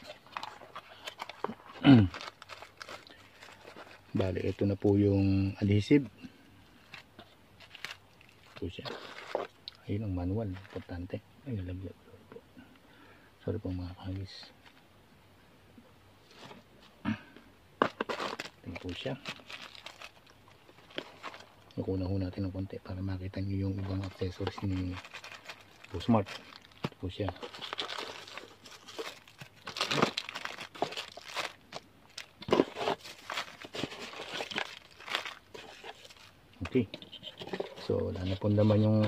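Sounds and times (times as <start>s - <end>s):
plastic bags rustling: 0.0s - 5.2s, 6.8s - 9.6s, 17.8s - 21.7s, 23.5s - 39.0s.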